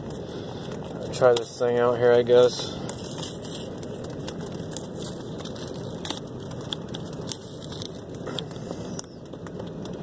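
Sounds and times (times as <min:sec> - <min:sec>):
packaging crinkling: 0:02.8 - 0:10.0.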